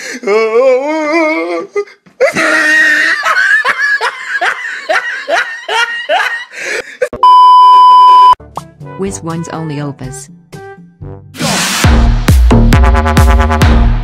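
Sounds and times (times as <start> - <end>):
loud steady beep tone: 7.2 - 8.4.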